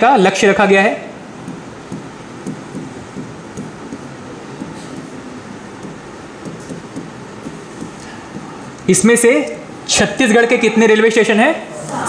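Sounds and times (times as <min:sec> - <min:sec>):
steady background hiss: 0:00.0 - 0:12.0
pen tapping and scratching on screen: 0:01.5 - 0:05.2, 0:05.8 - 0:08.6.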